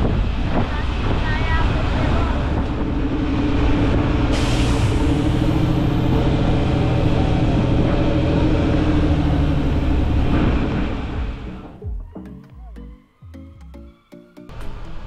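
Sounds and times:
dense rushing noise: 0.0s - 11.8s.

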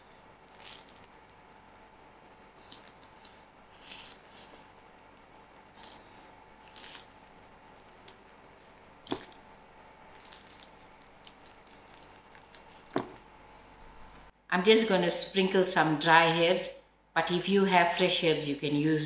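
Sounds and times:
soft dough squishing: 0.0s - 13.4s.

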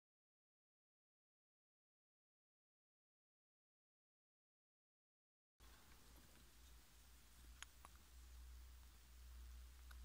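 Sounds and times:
low steady hum: 5.6s - 10.0s.

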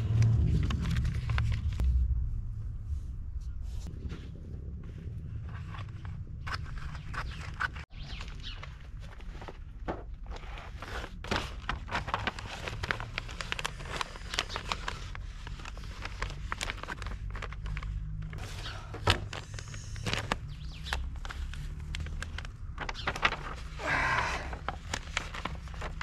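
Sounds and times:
vinyl sheet rustling and crinkling: 0.0s - 1.8s, 3.9s - 26.0s
steady low rumble: 0.0s - 7.9s.

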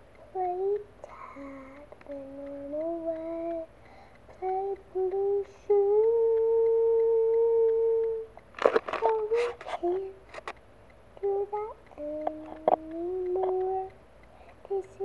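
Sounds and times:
girl humming a slow tune: 0.3s - 3.7s, 4.3s - 8.4s, 9.0s - 10.3s, 11.2s - 15.0s.

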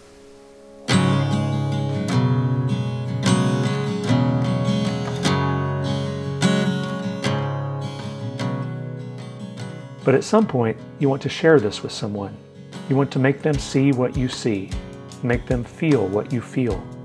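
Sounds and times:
faint hiss: 0.0s - 2.2s
strummed acoustic guitar: 0.0s - 17.0s.

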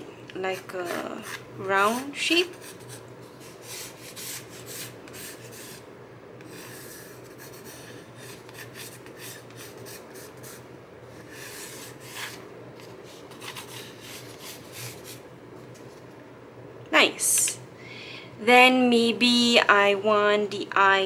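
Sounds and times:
pencil scratching on cardboard: 0.5s - 1.4s, 2.4s - 5.8s, 6.5s - 10.6s, 11.2s - 12.4s.

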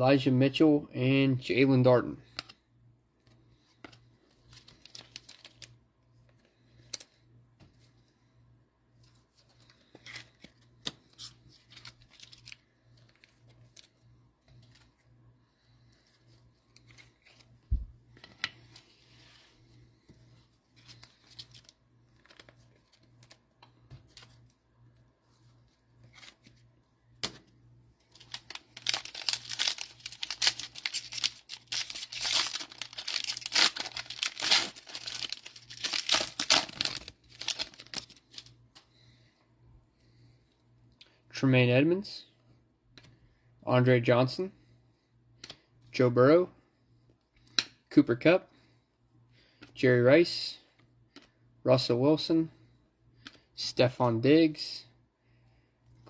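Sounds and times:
cards clicking and rustling: 20.8s - 24.5s, 28.1s - 38.9s
foil wrapper tearing and crinkling: 28.2s - 38.5s.

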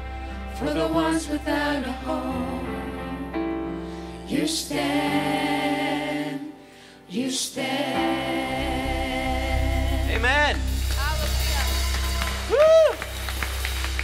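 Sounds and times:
women singing together: 0.5s - 3.3s, 4.2s - 10.1s
instrumental accompaniment: 8.0s - 14.0s.

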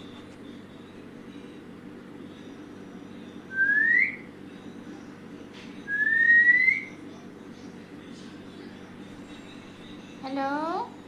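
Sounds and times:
parakeet rising whistles: 3.5s - 4.3s, 5.9s - 6.9s.

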